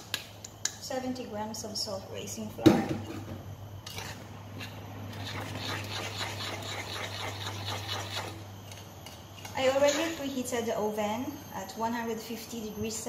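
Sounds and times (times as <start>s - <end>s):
steady low hum: 0.0s - 13.0s
utensil scraping batter in bowl: 3.9s - 8.5s.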